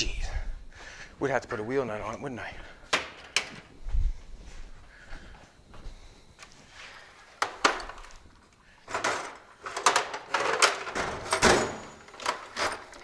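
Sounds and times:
metal tools clattering: 0:08.9 - 0:13.0.

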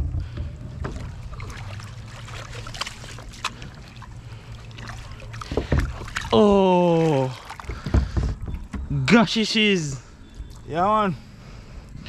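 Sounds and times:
paddle strokes in water: 0:00.0 - 0:08.9
low steady rumble: 0:00.0 - 0:09.1
water trickling and dripping: 0:00.2 - 0:08.8, 0:09.6 - 0:11.1.

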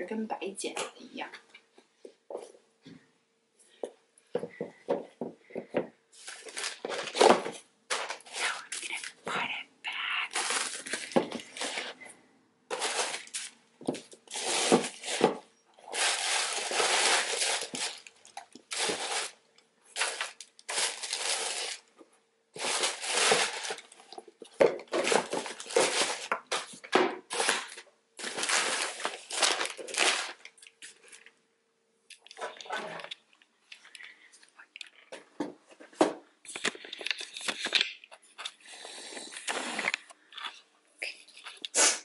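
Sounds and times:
packing paper crinkling: 0:06.2 - 0:09.2, 0:10.0 - 0:12.0, 0:12.7 - 0:21.9, 0:22.5 - 0:31.4, 0:36.4 - 0:38.6.

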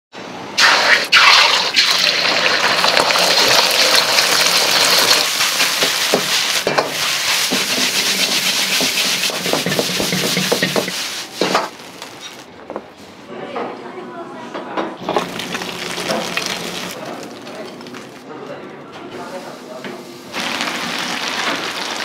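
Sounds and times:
egg sizzling in hot oil: 0:00.6 - 0:12.4, 0:15.1 - 0:18.1, 0:20.4 - 0:22.0
metal ladle scraping a wok: 0:05.3 - 0:12.4.

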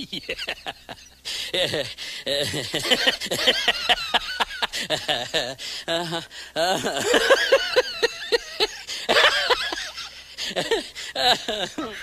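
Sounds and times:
person laughing high-pitched: 0:00.0 - 0:12.0.

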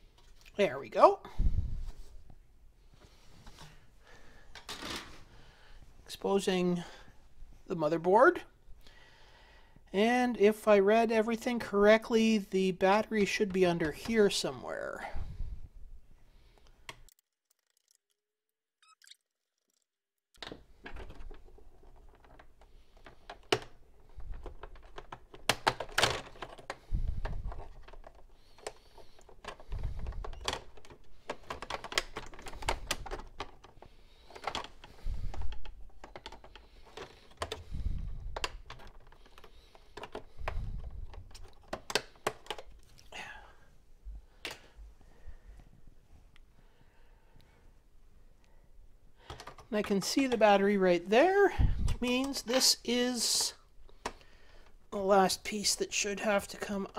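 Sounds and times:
screwdriver and parts clicking: 0:20.4 - 0:42.9.

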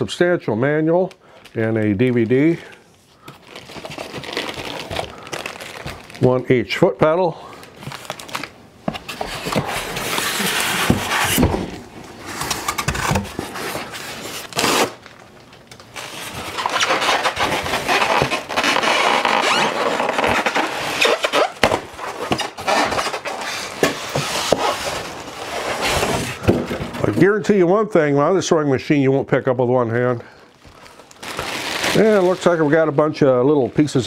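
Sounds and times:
plastic bag crinkling: 0:01.2 - 0:06.8, 0:07.4 - 0:08.6, 0:30.4 - 0:34.0
styrofoam scraping and squeaking: 0:08.0 - 0:11.6, 0:16.0 - 0:26.4, 0:31.0 - 0:32.9.

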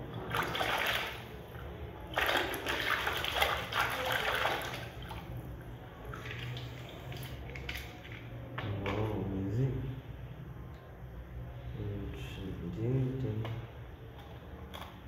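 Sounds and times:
water sloshing in plastic tub: 0:00.0 - 0:09.1.

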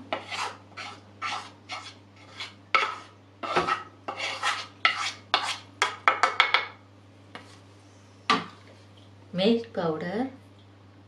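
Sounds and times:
spoon scraping a bowl: 0:00.1 - 0:06.0.

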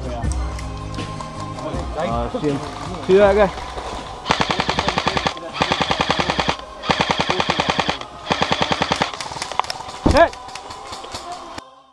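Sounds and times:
airsoft rifle firing bursts: 0:04.3 - 0:10.0.

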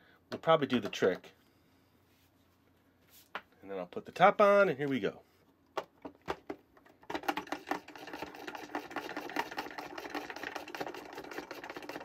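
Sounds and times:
plastic pump plunger clatter: 0:05.8 - 0:12.0.

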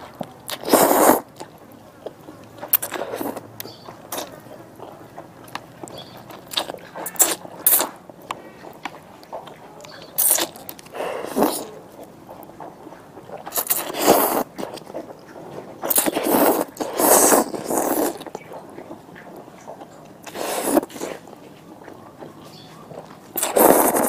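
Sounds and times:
quiet chewing: 0:00.0 - 0:24.0
person slurping noodles: 0:00.5 - 0:01.5, 0:02.7 - 0:03.4, 0:06.5 - 0:08.0, 0:10.2 - 0:11.8, 0:13.4 - 0:15.0, 0:15.8 - 0:18.4, 0:20.2 - 0:21.3, 0:23.3 - 0:24.0.

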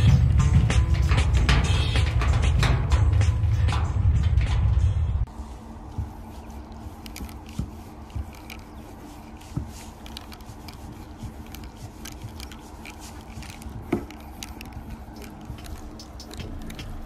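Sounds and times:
marker nib scraping on metal: 0:06.6 - 0:17.0.

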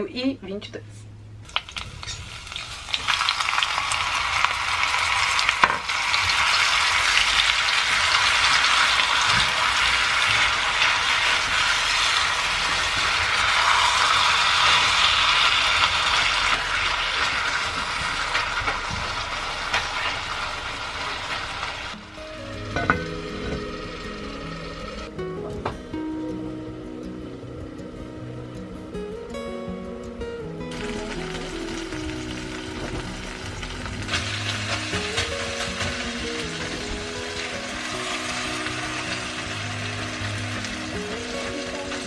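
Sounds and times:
meat sizzling in a pot: 0:01.5 - 0:22.0, 0:30.7 - 0:42.0.

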